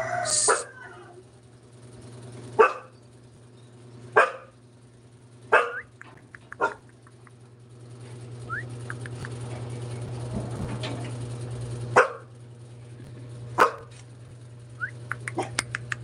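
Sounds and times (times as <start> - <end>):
dog barking sharply: 2.6 - 2.9, 4.2 - 4.5, 5.5 - 5.9, 6.5 - 6.9, 12.0 - 12.3, 13.6 - 13.9.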